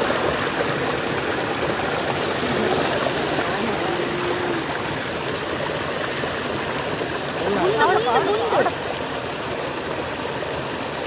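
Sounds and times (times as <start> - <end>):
stream rushing over rocks: 0.0 - 11.0.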